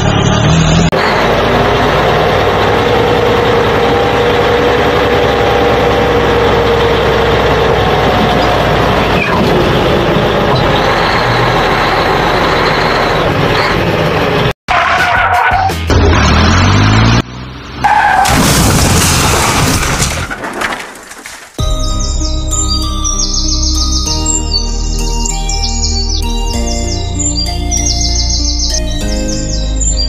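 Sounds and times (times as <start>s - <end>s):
large truck engine running: 0.0s - 14.6s.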